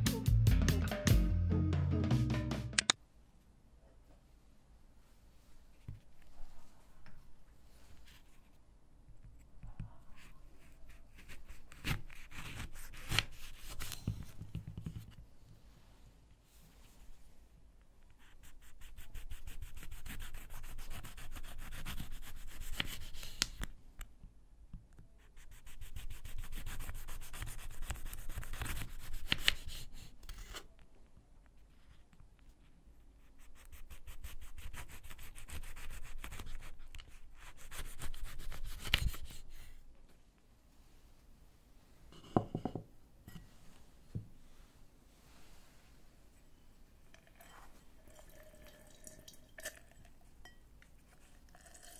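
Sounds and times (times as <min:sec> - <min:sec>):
knife knocking on cutting board: 0:42.3 - 0:42.9.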